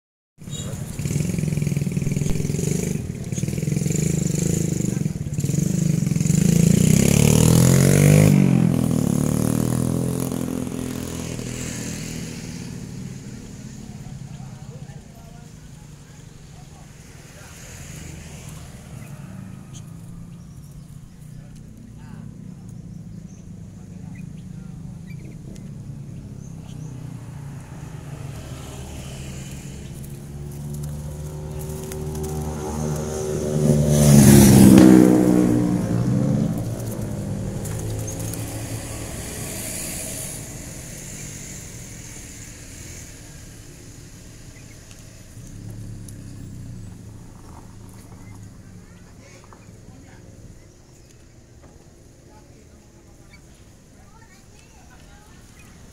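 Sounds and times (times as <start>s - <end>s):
faint bird chirps: 0.4s - 1.0s, 18.8s - 27.3s
vehicle engine passing by: 0.4s - 55.9s.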